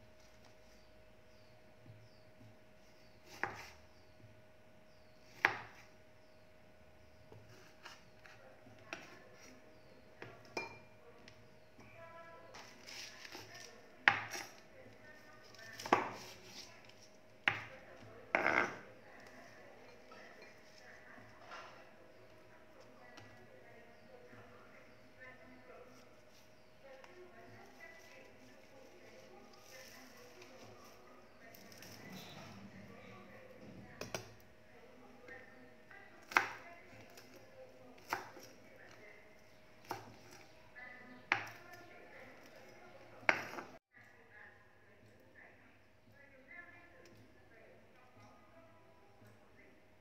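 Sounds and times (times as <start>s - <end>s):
knife chopping on wooden board: 3.2s - 3.8s, 5.3s - 5.9s, 12.6s - 14.6s, 15.7s - 16.7s, 36.2s - 37.4s, 38.0s - 38.6s, 43.2s - 43.7s.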